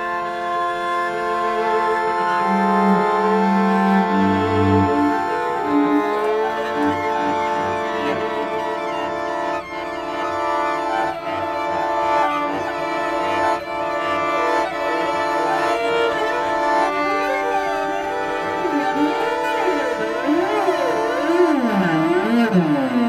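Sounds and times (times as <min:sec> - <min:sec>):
string-like background music: 0:00.0 - 0:23.0.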